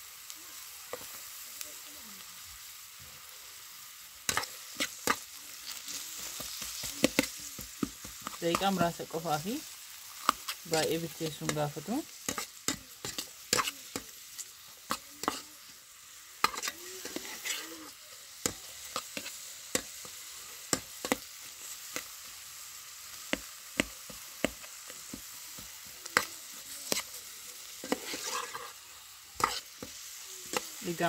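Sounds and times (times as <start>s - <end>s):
onions sizzling in a pot: 0.0s - 31.0s
metal spoon scraping a pot: 15.2s - 15.5s, 16.4s - 17.9s, 27.8s - 28.8s.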